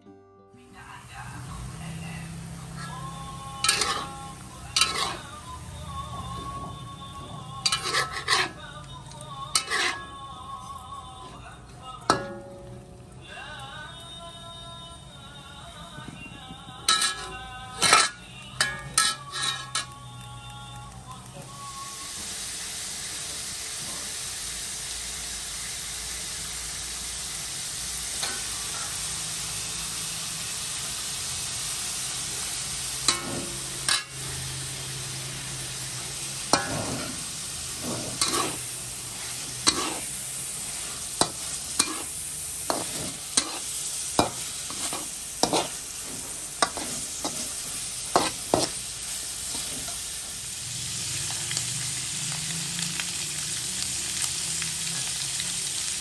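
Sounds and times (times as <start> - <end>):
meat sizzling in a wok: 0.9 - 10.9, 16.8 - 56.0
metal spatula scraping a wok: 2.6 - 8.7, 9.5 - 10.2, 16.8 - 20.0, 32.9 - 34.5, 35.6 - 50.4.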